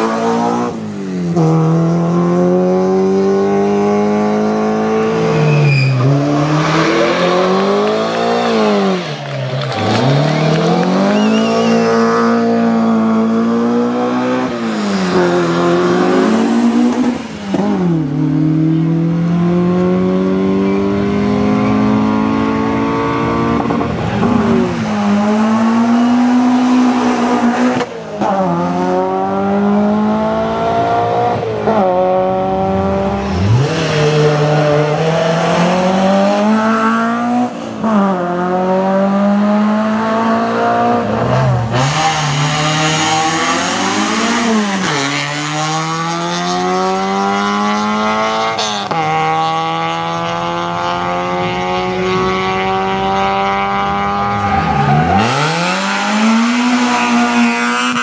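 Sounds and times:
race car engines revving: 0.0 - 58.0.

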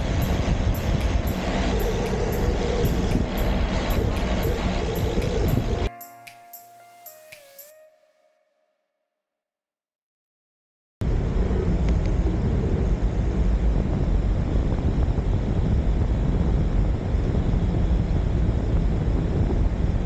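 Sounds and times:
wind buffeting microphone: 0.0 - 5.9, 11.0 - 20.0.

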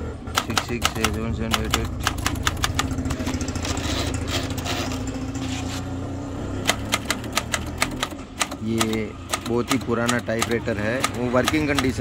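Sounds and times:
typewriter keys clacking: 0.4 - 2.9, 6.7 - 12.0
engine drone: 1.0 - 8.4.

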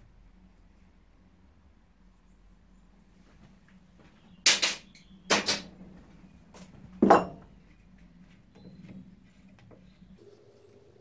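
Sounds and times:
metal knocks and clatters: 7.0 - 7.6.

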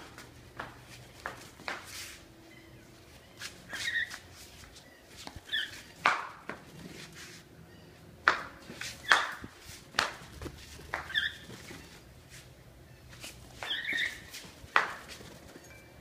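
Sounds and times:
footsteps on tiled floor: 0.0 - 7.5, 8.2 - 15.5
cockatiel chirping: 3.7 - 4.2, 4.8 - 5.8, 11.0 - 11.9, 13.6 - 14.3.

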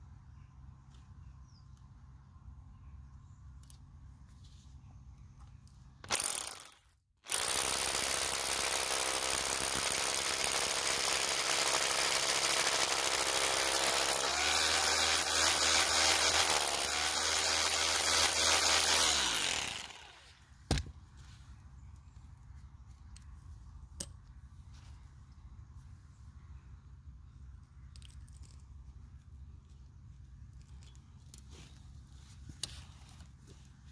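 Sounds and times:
rotary hammer drill hammering masonry: 6.0 - 20.2.

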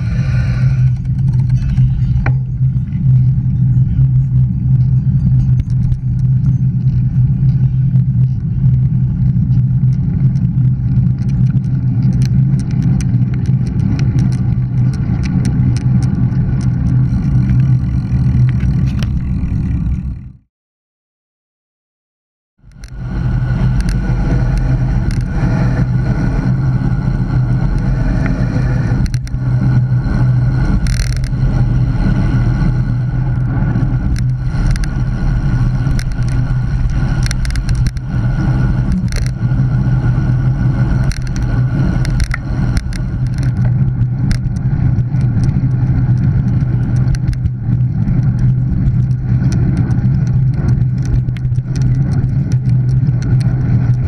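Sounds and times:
wind rushing over camera: 0.0 - 20.4, 22.6 - 54.0
bike clicks and knocks: 0.9 - 3.3, 4.0 - 20.2, 29.0 - 29.4, 30.6 - 31.4, 34.0 - 35.0, 35.8 - 38.2, 38.9 - 39.5, 41.0 - 54.0.

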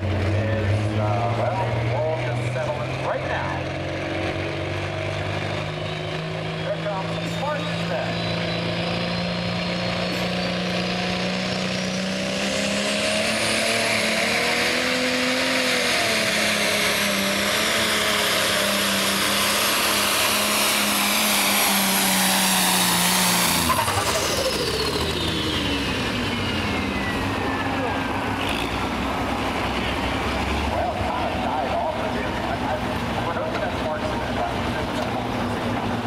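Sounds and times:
diesel engine at full throttle: 0.0 - 36.0
turbo whine: 5.6 - 11.6.

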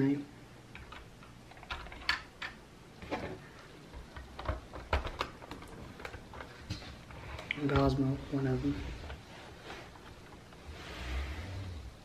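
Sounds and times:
plastic toy bricks clicking: 0.8 - 2.6.

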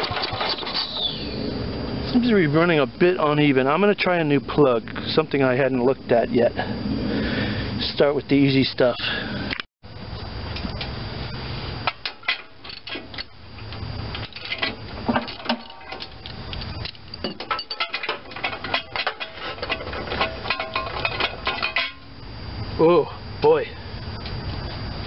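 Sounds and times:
low steady hum: 0.0 - 25.0
metal clinking: 14.2 - 22.1.

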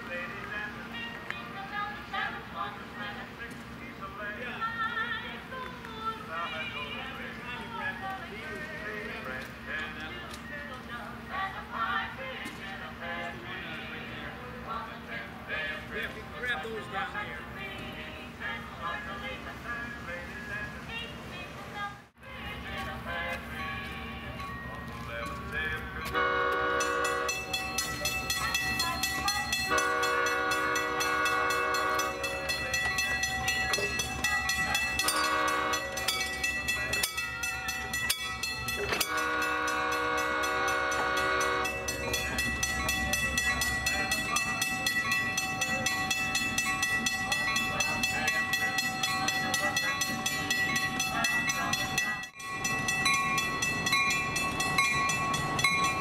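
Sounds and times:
low engine rumble: 0.0 - 56.0
locomotive air horn: 26.1 - 27.6, 29.1 - 32.7, 33.7 - 36.2, 38.8 - 42.2
high ringing tones: 26.1 - 56.0.

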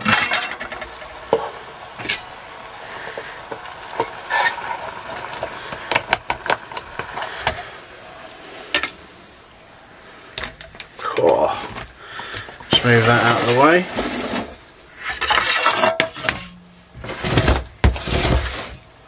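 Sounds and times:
pots clinking and knocking: 0.0 - 2.3, 8.7 - 9.0, 14.0 - 18.7
stove sizzling hiss: 0.0 - 19.0.

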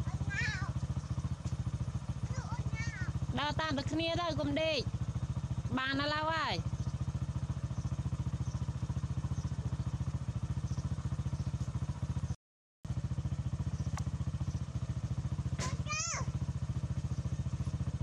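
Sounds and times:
small engine throbbing: 0.0 - 18.0
high-pitched cry: 15.6 - 16.3.

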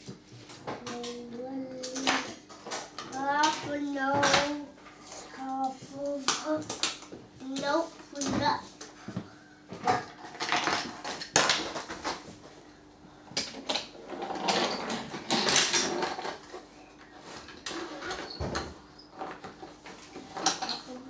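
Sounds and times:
toy train rolling on wooden track: 14.1 - 16.6.

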